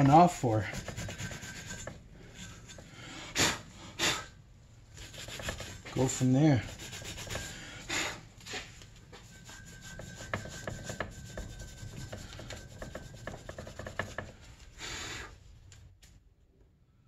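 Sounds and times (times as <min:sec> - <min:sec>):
scouring pad scrubbing metal: 0:09.3 - 0:14.3.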